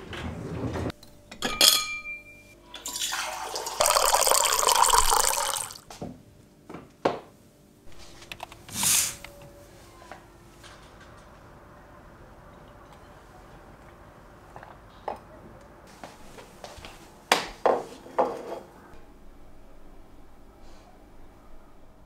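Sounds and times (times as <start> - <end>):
water running: 2.9 - 5.8.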